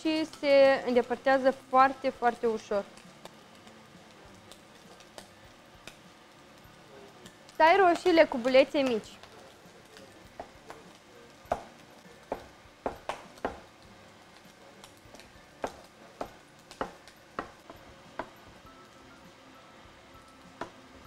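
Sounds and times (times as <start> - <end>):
knife chopping on wooden board: 11.5 - 13.7, 15.6 - 18.4.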